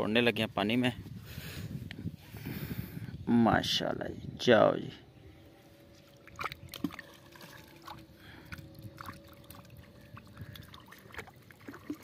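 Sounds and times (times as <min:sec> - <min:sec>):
water dripping and splashing: 0:06.1 - 0:12.0.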